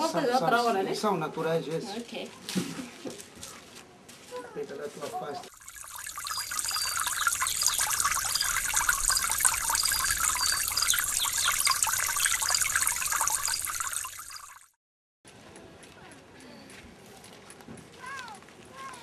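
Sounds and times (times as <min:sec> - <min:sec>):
water trickling and babbling: 0:05.5 - 0:14.8
short high chirps: 0:05.7 - 0:14.7.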